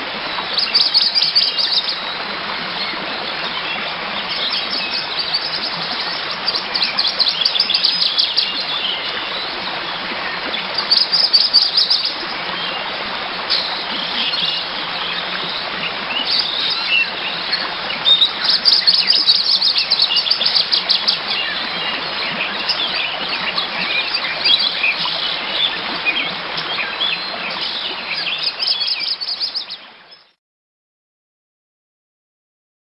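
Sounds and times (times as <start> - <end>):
birds chirping and singing: 3.6 - 9.4, 10.4 - 12.8, 13.5 - 30.3.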